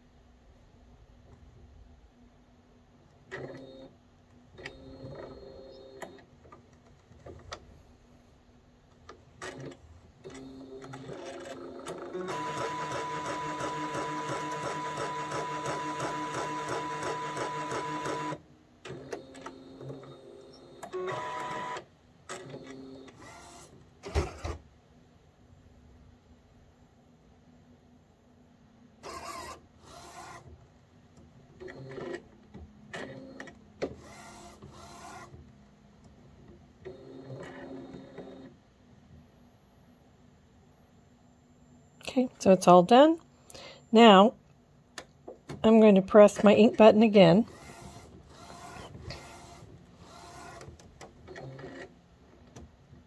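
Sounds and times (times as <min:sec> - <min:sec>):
printer motors whirring: 0:04.6 - 0:06.3, 0:09.4 - 0:28.4, 0:29.0 - 0:30.6, 0:32.9 - 0:35.4, 0:36.9 - 0:38.5, 0:47.5 - 0:51.9.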